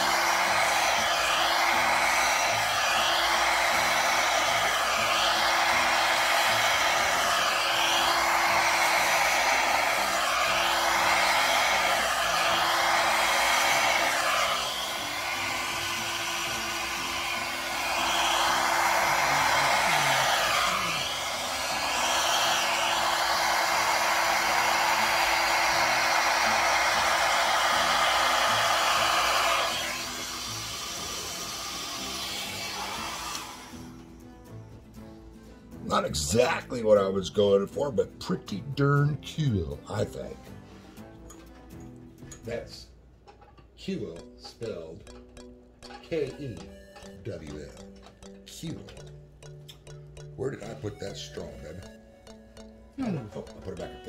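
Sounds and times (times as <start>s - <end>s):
hair dryer blowing air: 0.0s - 34.3s.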